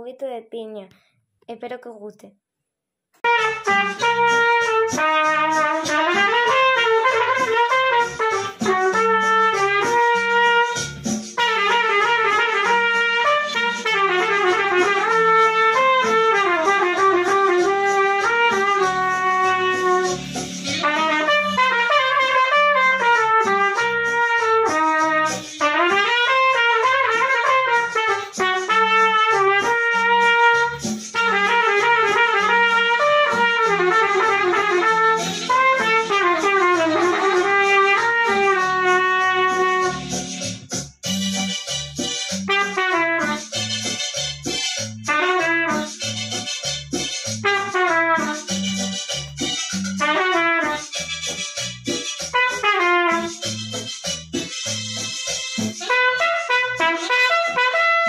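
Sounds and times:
trumpet playing a melody: 3.2 - 58.0.

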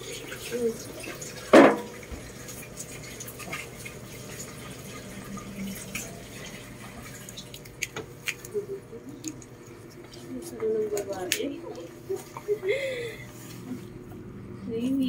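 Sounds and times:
puppies nursing wet clicks: 5.9 - 12.5.

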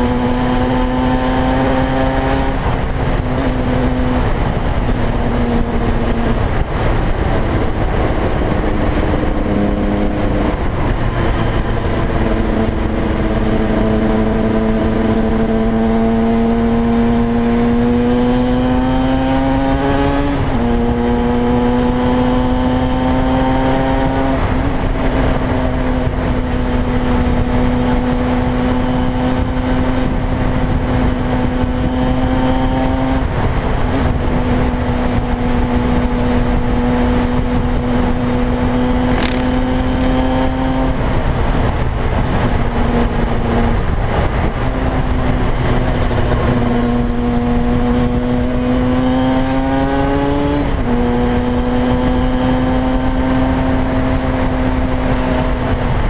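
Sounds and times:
two-stroke motorcycle engine revving: 0.0 - 56.0
wind rushing: 0.0 - 56.0.

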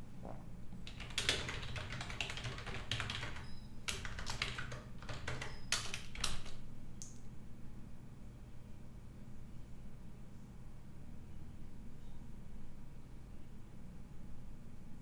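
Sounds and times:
typing on computer keyboard: 0.8 - 6.6.

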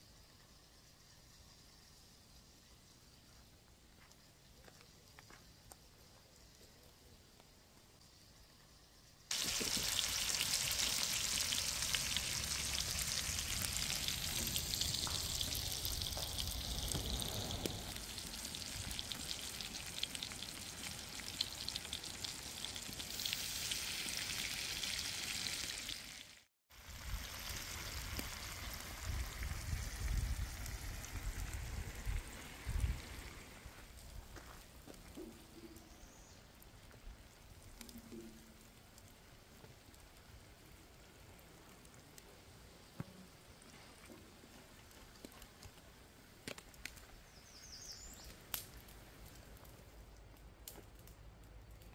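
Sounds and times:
meat sizzling in a skillet: 9.3 - 33.8.

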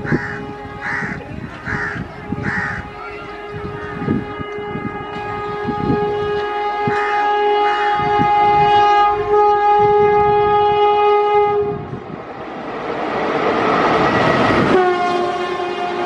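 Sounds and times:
train horn blast: 0.0 - 12.2, 13.9 - 16.0
train rumbling: 0.0 - 16.0.

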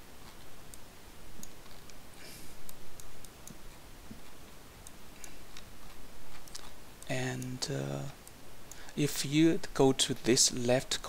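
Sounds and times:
faint steady hiss: 0.0 - 11.0
computer mouse clicks: 1.4 - 2.0.

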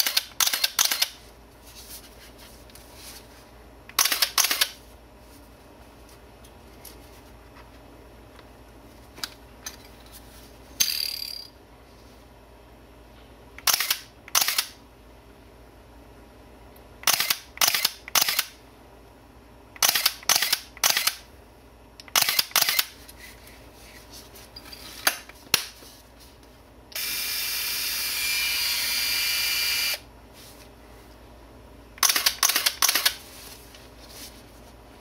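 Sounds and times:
camera shutter clicks: 0.0 - 1.2, 4.0 - 4.8, 13.6 - 14.8, 17.0 - 18.6, 19.8 - 21.2, 22.1 - 22.9, 32.0 - 33.2
camera motor whir: 22.2 - 22.9, 27.0 - 30.0.

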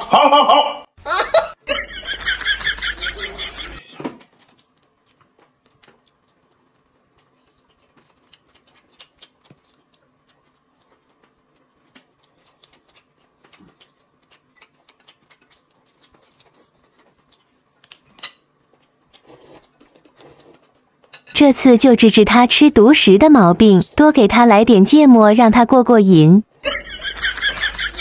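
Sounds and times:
person chewing: 4.3 - 21.2.

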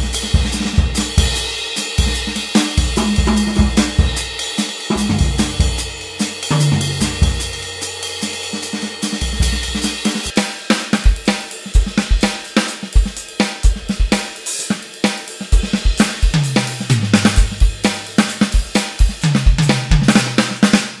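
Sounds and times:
electronic drum groove: 0.0 - 7.7, 8.6 - 21.0
tom fills: 16.0 - 18.7.

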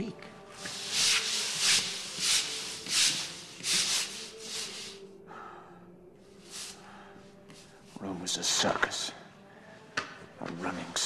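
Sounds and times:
brushes scrubbing wet stone floor: 0.6 - 5.0.

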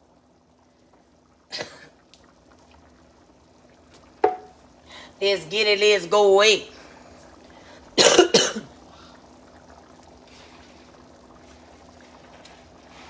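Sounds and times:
person coughing: 1.5 - 1.9, 8.0 - 8.7.

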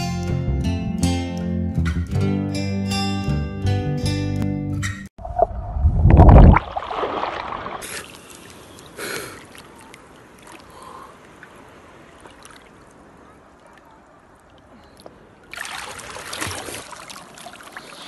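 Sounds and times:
pool water splashing: 6.2 - 18.0
faint lapping water: 6.6 - 18.0.

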